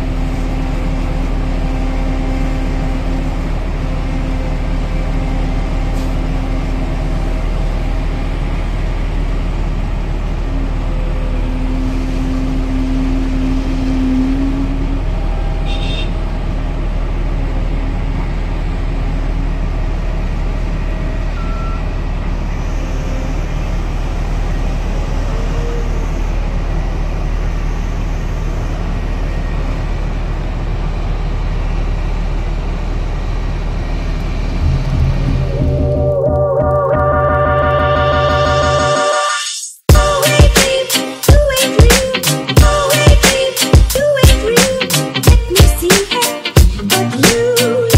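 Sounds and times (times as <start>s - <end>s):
heavy diesel engines running: 0.0s - 39.3s, 39.9s - 47.9s
humming tone rising in pitch: 10.5s - 15.5s, 34.4s - 39.4s.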